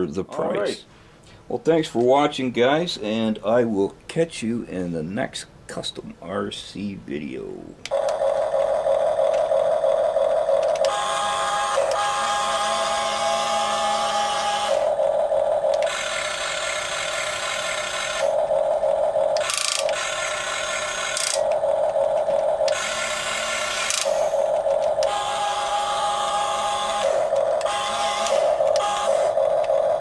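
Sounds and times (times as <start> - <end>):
toy excavator motors whirring: 7.9 - 30.0.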